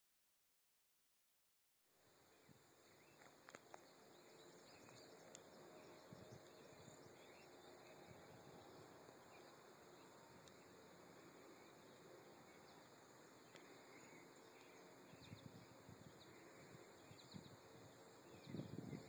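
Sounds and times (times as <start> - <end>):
faint high hiss: 1.9 - 19.0
faint ticks: 4.8 - 5.5, 10.3 - 10.8, 13.4 - 14.8.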